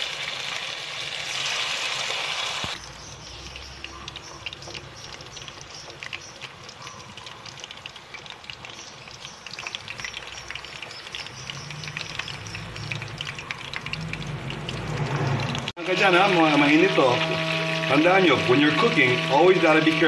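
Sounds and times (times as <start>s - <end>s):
chicken sizzling in hot oil: 0.0s - 20.0s.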